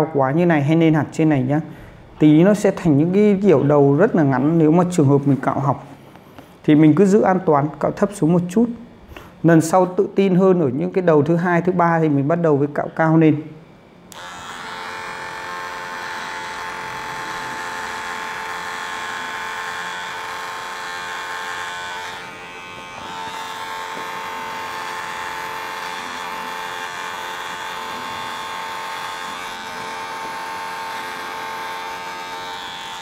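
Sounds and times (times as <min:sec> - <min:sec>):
electric hair trimmer buzzing: 0:14.1 - 0:33.0.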